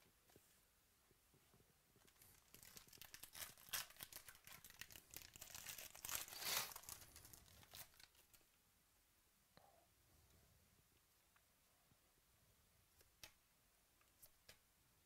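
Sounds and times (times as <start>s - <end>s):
foil wrapper crinkling and tearing: 2.1s - 8.4s.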